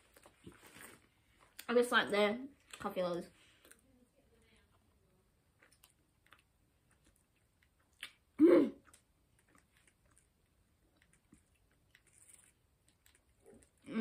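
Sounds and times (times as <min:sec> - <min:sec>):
chewing chocolate: 0:05.4 - 0:14.0.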